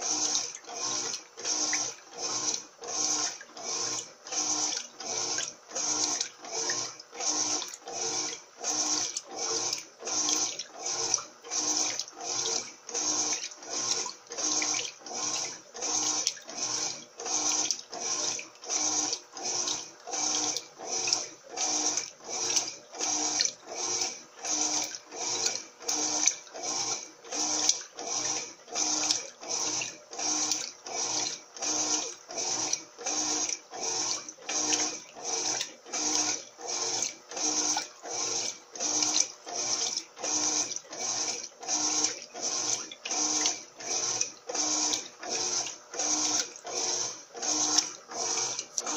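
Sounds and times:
washing machine sloshing water: 0.0 - 48.9.

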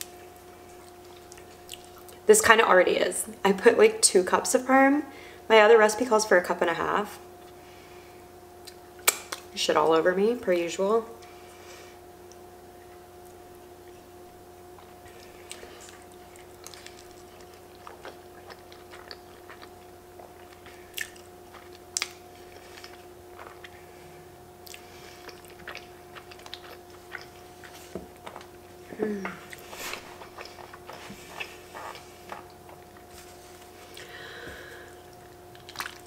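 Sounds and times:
faint steady hum: 0.0 - 36.0
person chewing and slurping: 14.8 - 36.0.

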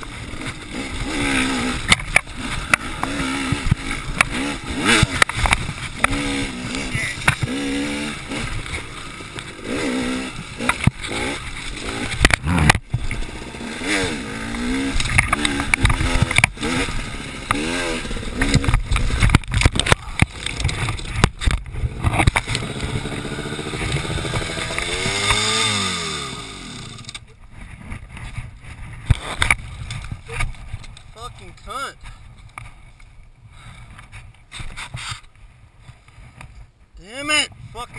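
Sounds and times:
dirt bike engine revving: 0.0 - 27.2
knocks and clatter from bike: 1.8 - 6.3, 7.2 - 7.6, 10.6 - 13.2, 14.5 - 25.5
scrapes: 33.6 - 36.7.

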